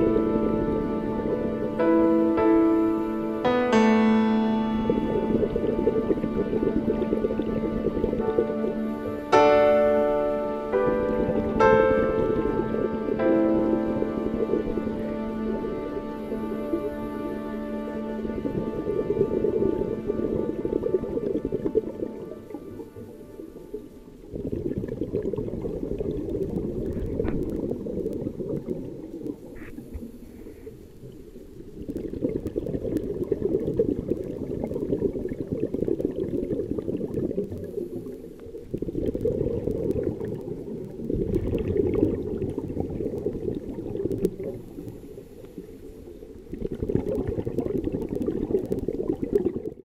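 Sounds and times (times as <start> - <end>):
scuba diver exhaling bubbles underwater: 24.3 - 30.6, 31.8 - 45.6, 46.5 - 49.8.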